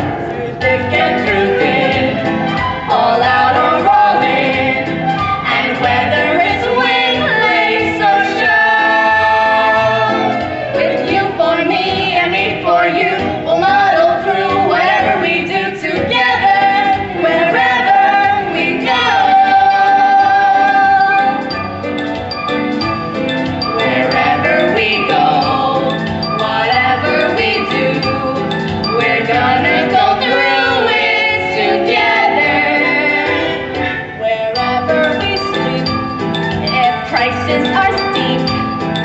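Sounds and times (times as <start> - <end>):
musical accompaniment: 0.0 - 39.0
vocal trio singing show tune: 0.0 - 39.0.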